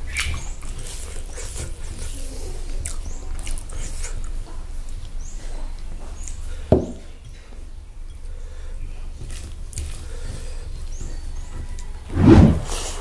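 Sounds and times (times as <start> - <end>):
man chewing and smacking: 0.0 - 5.2.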